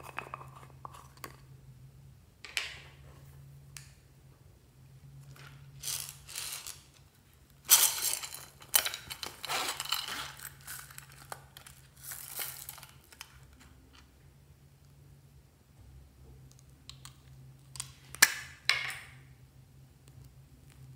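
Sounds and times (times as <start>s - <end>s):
plastic beads rattling: 5.7s - 7.0s, 7.6s - 13.4s.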